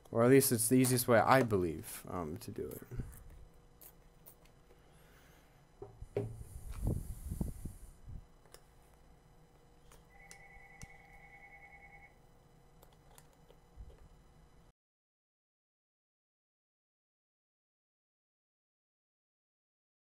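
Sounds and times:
faint two-pitched tone: 0:10.1 - 0:12.2.

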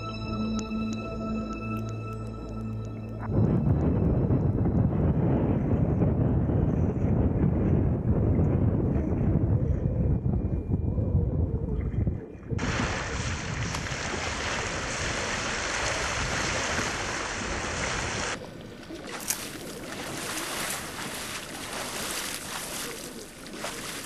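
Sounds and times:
wind rumble on microphone: 0:03.2 - 0:24.0
seawater rushing and splashing: 0:12.6 - 0:24.0.

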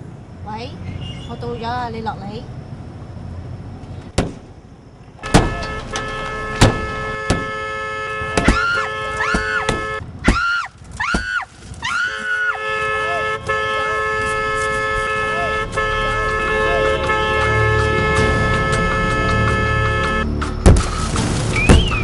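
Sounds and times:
car alarm wailing: 0:05.2 - 0:10.0, 0:12.0 - 0:20.3.

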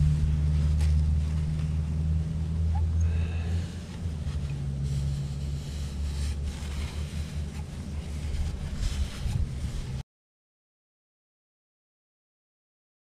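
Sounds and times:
steady low hum: 0:00.0 - 0:10.0
paper towel rubbing metal: 0:03.6 - 0:10.0.

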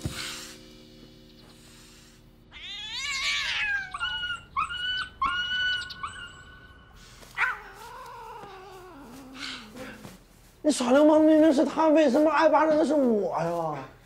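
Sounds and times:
cat yowling: 0:02.5 - 0:06.8, 0:07.4 - 0:09.2.

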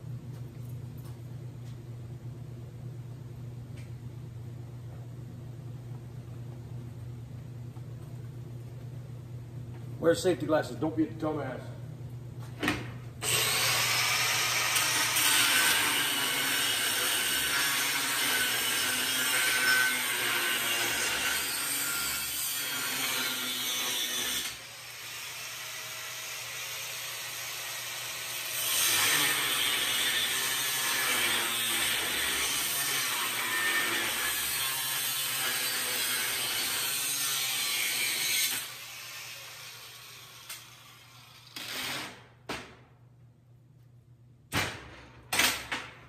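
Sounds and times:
angle grinder on steel: 0:13.2 - 0:42.0.

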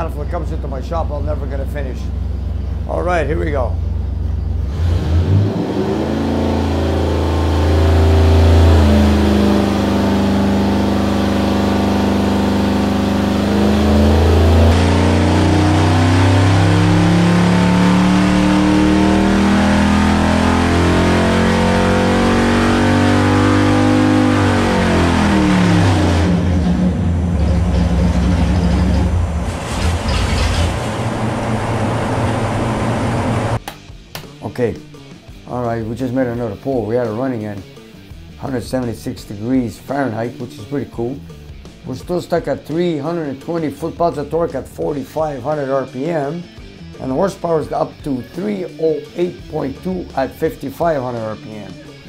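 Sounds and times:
engine revving under load: 0:00.0 - 0:33.6.

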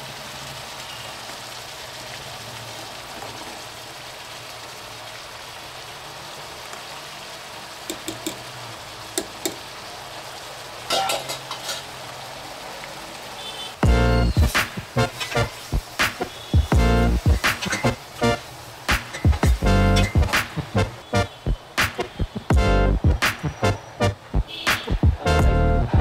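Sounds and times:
food sizzling in oil: 0:00.0 - 0:25.1
utensil clicking against pot: 0:07.9 - 0:08.4, 0:09.2 - 0:09.6
music: 0:13.8 - 0:26.0.

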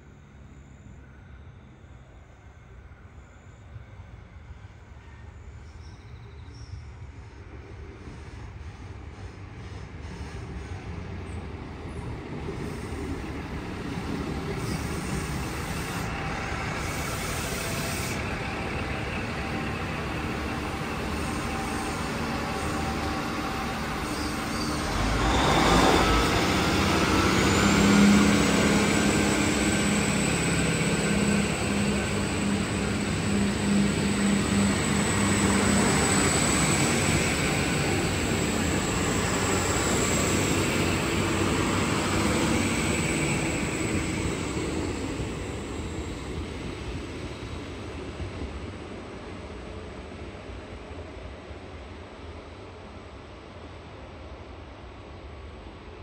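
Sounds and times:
train rumbling on rails: 0:00.0 - 0:56.0
high-pitched squeal: 0:14.4 - 0:46.2.

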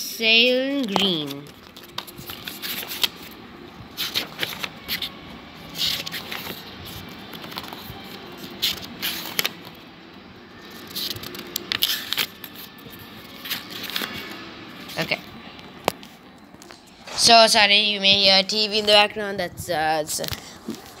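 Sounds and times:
book pages turning: 0:00.4 - 0:17.2, 0:20.1 - 0:21.0.

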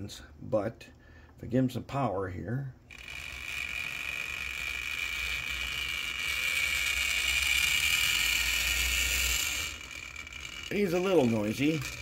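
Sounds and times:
model train motor whining: 0:02.9 - 0:12.0.

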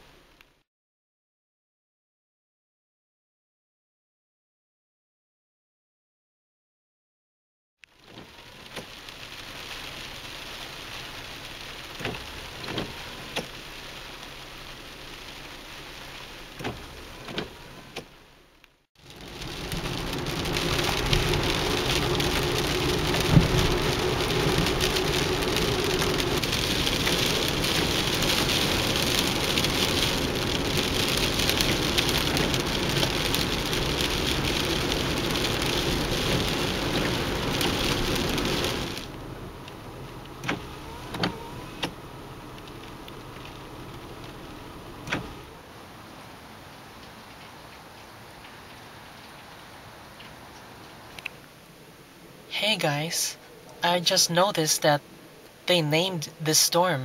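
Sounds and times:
rain drops tapping on car: 0:07.8 - 0:18.2, 0:19.0 - 0:51.6
car rumbling on wet road: 0:07.8 - 0:53.8
rain on car windshield: 0:07.8 - 0:56.9.

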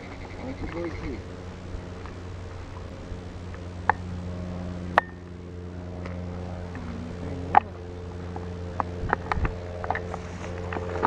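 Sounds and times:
car engine humming: 0:00.0 - 0:11.0.

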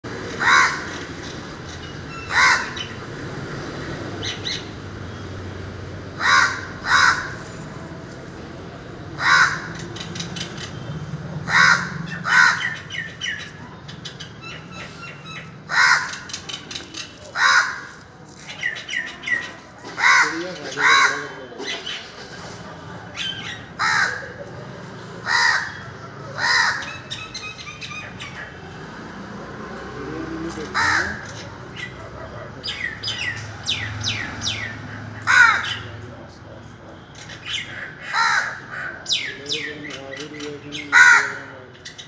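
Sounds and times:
small birds chirping: 0:00.1 - 0:03.2, 0:09.7 - 0:17.4, 0:18.3 - 0:19.8, 0:26.6 - 0:29.2, 0:29.8 - 0:42.0
crow cawing: 0:00.3 - 0:01.0, 0:02.3 - 0:03.0, 0:06.2 - 0:07.5, 0:09.2 - 0:09.9, 0:11.4 - 0:13.0, 0:15.7 - 0:16.3, 0:17.4 - 0:18.0, 0:19.9 - 0:21.3, 0:23.8 - 0:24.4, 0:25.2 - 0:27.1, 0:30.6 - 0:31.4, 0:35.2 - 0:35.9, 0:37.5 - 0:39.2, 0:40.4 - 0:41.8.

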